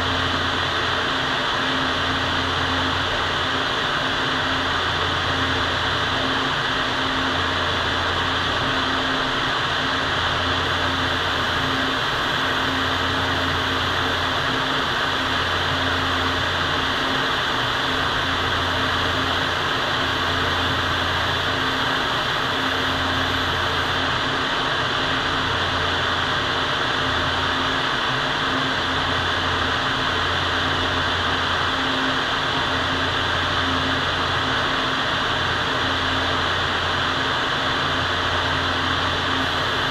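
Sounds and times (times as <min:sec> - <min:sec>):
ventilation fan rushing air: 0:00.0 - 0:39.9.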